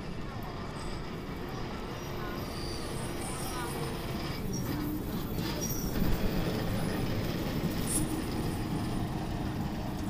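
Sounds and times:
rail vehicle rumbling on track: 0.0 - 10.0
high wheel squeal: 2.0 - 6.0.

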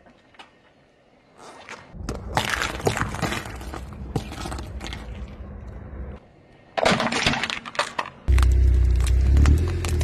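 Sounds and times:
car tyre crushing small objects: 1.4 - 5.8, 6.8 - 10.0.

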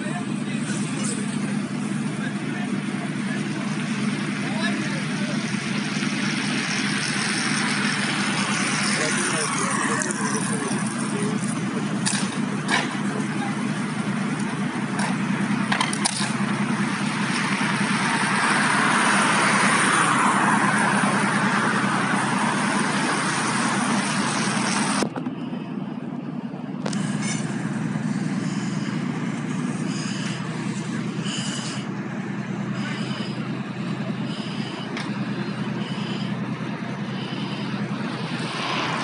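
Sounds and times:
engine rumble and hiss: 0.0 - 39.0.

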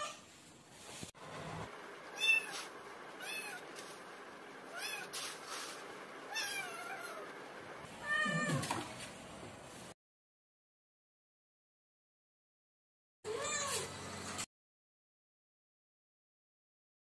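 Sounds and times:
lower cat meow: 8.0 - 8.7, 13.3 - 13.9.

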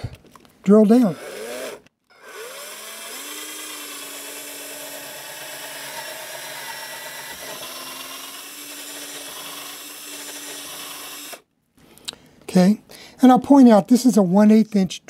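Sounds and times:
cordless drill boring: 1.0 - 11.4.

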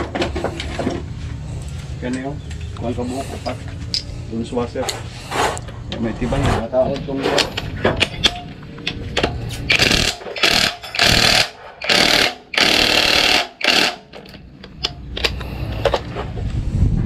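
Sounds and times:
power tool bursts: 9.7 - 14.1.

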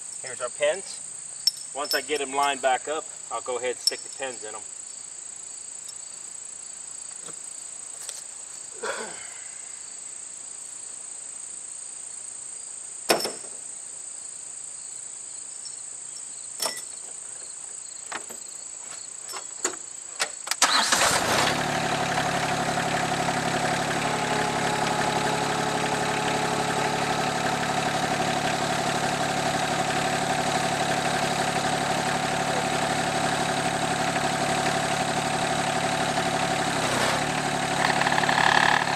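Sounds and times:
high insect trill: 0.0 - 21.1
tractor engine starting and idling: 20.5 - 38.9.

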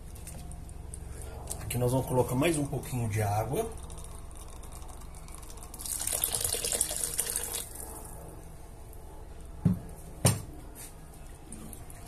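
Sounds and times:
water poured into a pan: 3.9 - 7.7.

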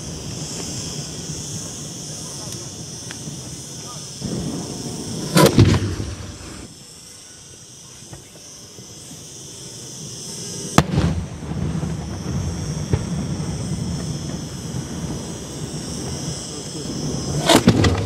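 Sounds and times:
firework cracks: 0.0 - 6.8, 7.8 - 18.0
aerial firework bangs: 4.2 - 6.7, 10.7 - 16.2, 16.9 - 18.0
rolling rumble: 17.4 - 18.0.

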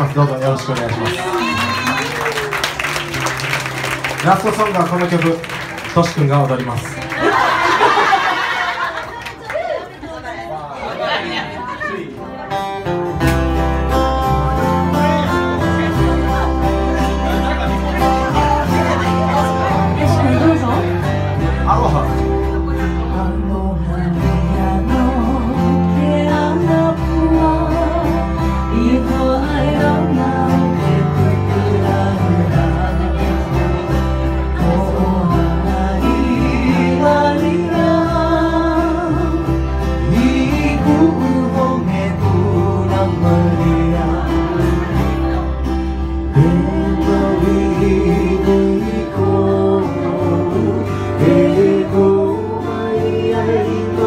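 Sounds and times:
ukulele and guitar strumming: 12.5 - 54.0
person singing: 22.6 - 54.0.

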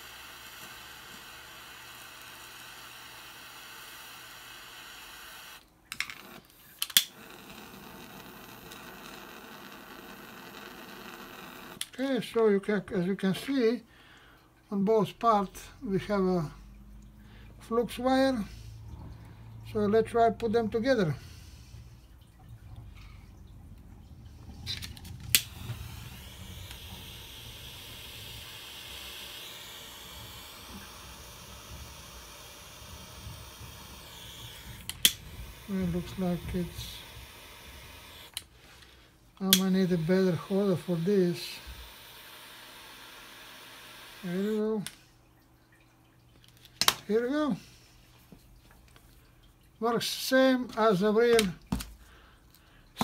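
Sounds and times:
lighter flame hissing: 24.5 - 38.5.

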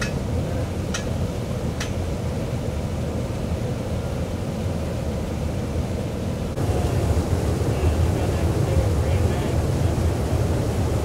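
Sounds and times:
water gushing from hydrant: 6.5 - 11.0.

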